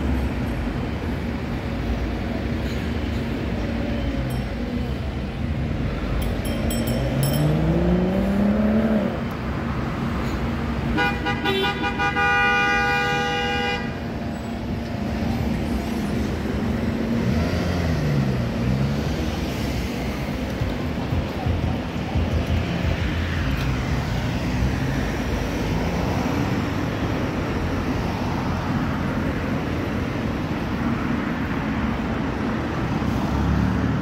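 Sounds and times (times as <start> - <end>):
road traffic engines: 0.0 - 34.0
engine revving pulling away: 7.0 - 9.2
vehicle horn blast: 10.9 - 14.0.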